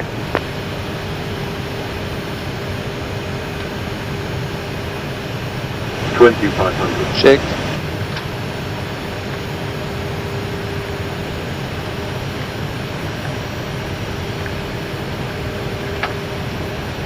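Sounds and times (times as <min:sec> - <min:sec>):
airflow and engine noise: 0:00.0 - 0:17.0
faint steady hum: 0:00.0 - 0:17.0.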